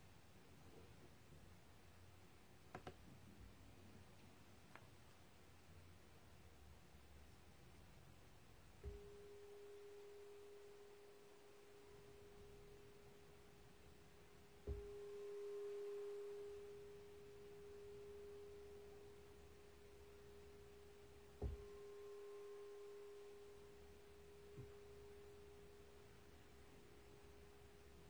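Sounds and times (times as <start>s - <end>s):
meditation bell ringing: 8.8s - 13.5s, 14.5s - 27.9s
light bell tap: 21.2s - 25.6s.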